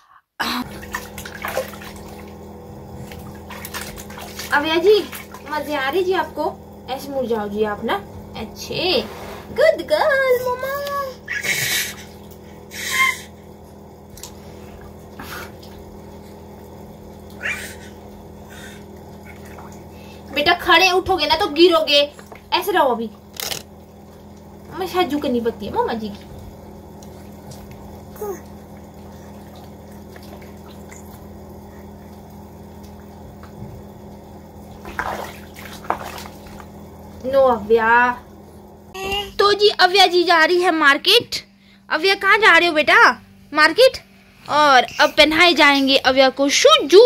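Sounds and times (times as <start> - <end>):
steady low hum: 0.0 - 47.0
baby splashing bath water: 0.4 - 41.4, 44.5 - 47.0
baby vocal sound: 11.1 - 12.1, 17.4 - 18.8, 28.2 - 28.5, 39.0 - 39.4, 44.8 - 45.4
baby squealing with laughter: 11.3 - 12.0.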